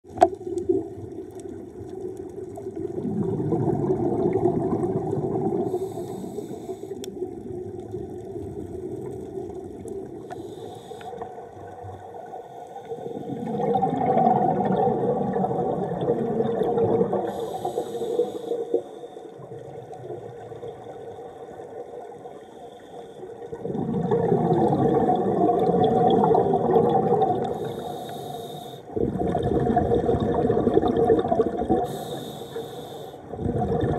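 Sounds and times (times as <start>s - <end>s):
underwater wash: 0.0s - 33.9s
bubbling regulator exhalations: 2.8s - 6.5s, 13.2s - 18.3s, 23.5s - 28.3s, 28.9s - 32.6s, 33.2s - 33.9s
regulator inhalation hisses: 5.7s - 7.0s, 10.3s - 11.2s, 17.3s - 19.3s, 27.5s - 28.9s, 31.8s - 33.3s.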